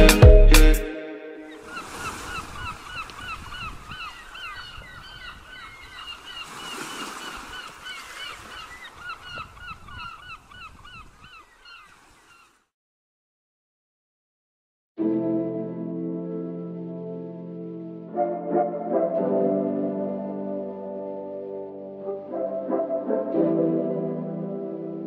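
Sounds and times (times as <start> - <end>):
wind: 1.0 - 12.7
flock of birds squawking: 1.5 - 12.6
water: 1.6 - 10.7, 11.3 - 12.7.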